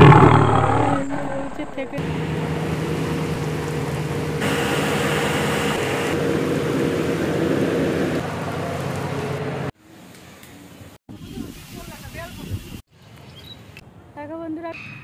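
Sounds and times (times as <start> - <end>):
aquarium pump hum: 0.0 - 9.7.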